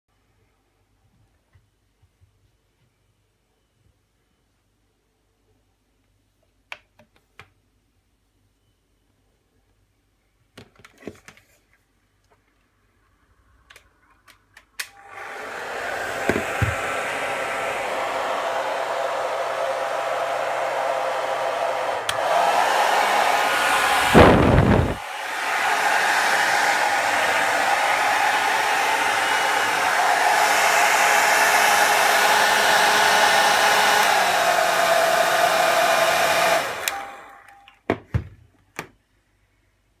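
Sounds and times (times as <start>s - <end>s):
hair dryer running: 14.9s - 37.6s
loud rush of noise: 15.1s - 37.1s.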